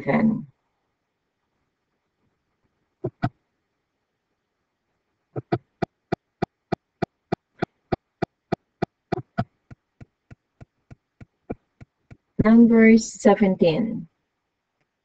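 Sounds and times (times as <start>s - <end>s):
sharp clicks: 5.4s - 12.5s.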